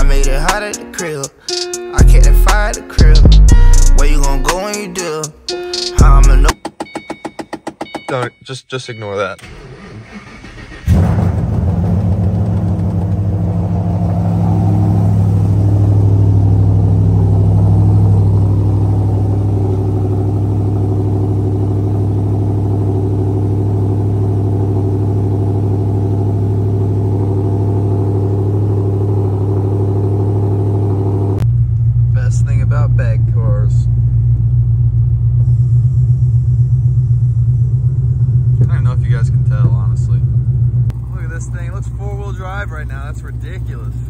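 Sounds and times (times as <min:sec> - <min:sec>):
car engine idling: 0:00.0 - 0:08.3, 0:09.4 - 0:44.0
car engine cold start: 0:09.3 - 0:13.8.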